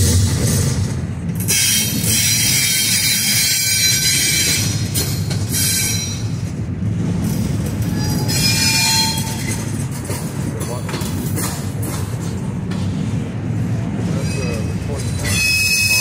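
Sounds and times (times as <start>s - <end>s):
train wheels rumbling on rails: 0.0s - 16.0s
high-pitched wheel squeal: 1.5s - 4.8s, 5.5s - 6.4s, 7.9s - 9.6s, 14.2s - 16.0s.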